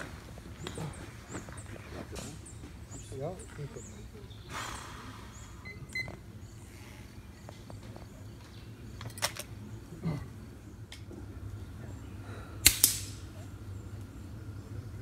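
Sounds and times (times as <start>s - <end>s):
low steady background: 0.0s - 15.0s
air rifle shots: 12.6s - 13.3s.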